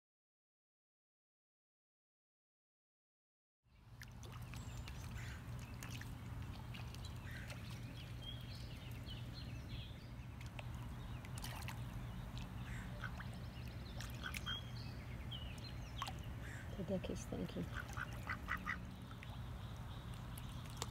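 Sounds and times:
low outdoor rumble: 3.8s - 20.9s
duck calls: 14.2s - 14.6s, 17.7s - 18.8s.

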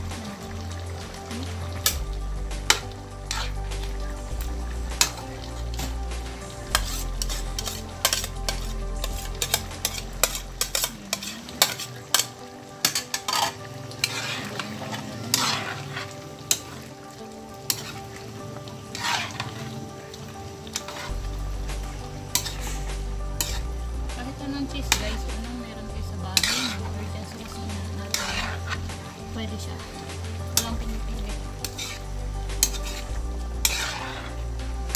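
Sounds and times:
low hum: 0.0s - 11.0s, 21.1s - 34.9s
spatula scraping a metal wok: 0.0s - 16.9s, 17.6s - 19.8s, 20.5s - 30.9s, 31.5s - 34.9s
sauce sizzling and bubbling: 0.0s - 34.9s.

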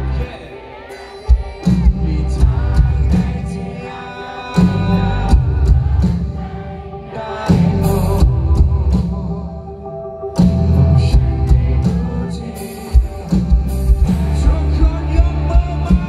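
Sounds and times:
man singing lead vocals: 0.0s - 9.4s, 10.4s - 16.0s
drums: 0.0s - 16.0s
heavy bass: 1.7s - 3.6s, 4.6s - 6.5s, 7.5s - 9.6s, 10.4s - 12.4s, 13.0s - 16.0s.

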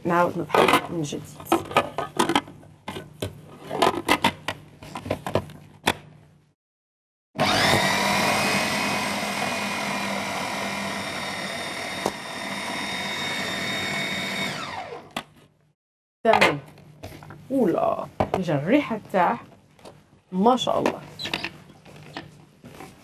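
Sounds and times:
food processor motor whining: 7.4s - 15.2s.

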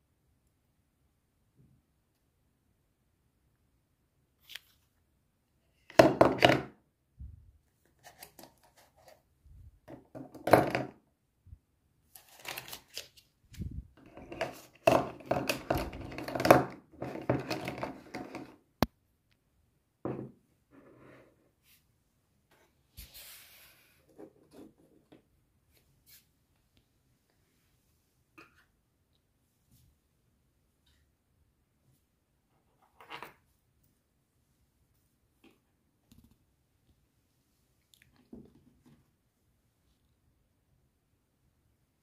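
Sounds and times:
plastic pens clattering in cup: 14.0s - 18.6s.

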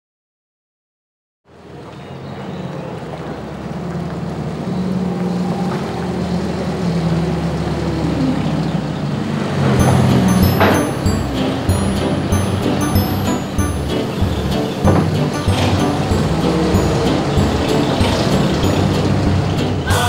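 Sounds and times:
diesel engine running: 3.4s - 20.0s.

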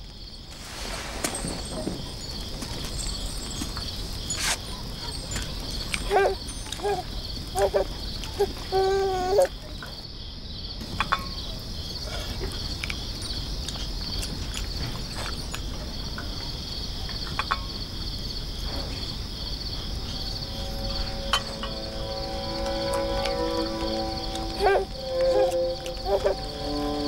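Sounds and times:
crickets chirping: 0.0s - 27.0s
soft sustained music notes: 19.7s - 27.0s.

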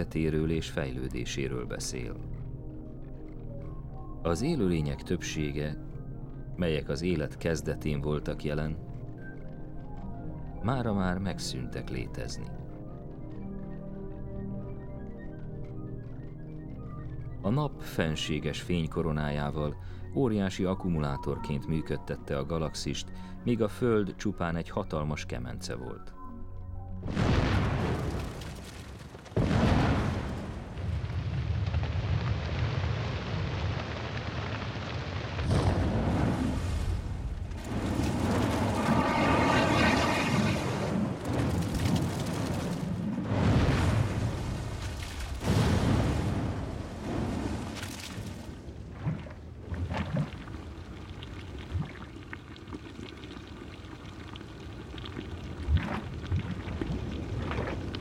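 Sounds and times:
volcanic blast: 27.0s - 47.8s
lava bubbling: 27.0s - 58.0s
deep plops: 43.2s - 53.0s, 55.0s - 58.0s.

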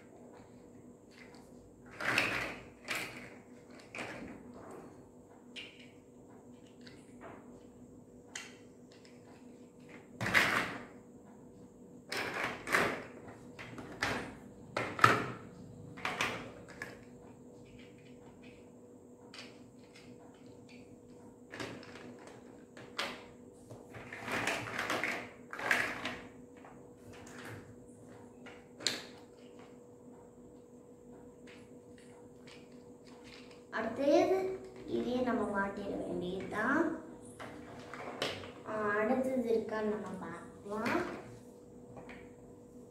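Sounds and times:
plastic building blocks clattering: 19.3s - 23.3s, 23.9s - 26.3s, 31.4s - 33.8s.

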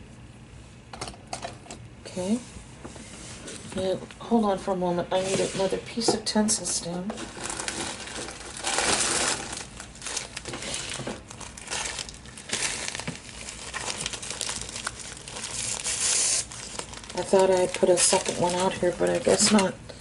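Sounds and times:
craft supplies crinkling and rustling: 6.6s - 19.7s.

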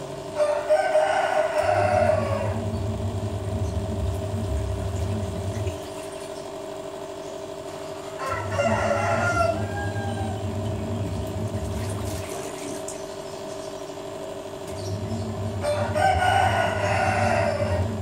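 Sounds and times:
low steady hum: 0.0s - 18.0s
rooster crowing: 0.3s - 2.8s, 7.9s - 11.0s, 15.4s - 18.0s.

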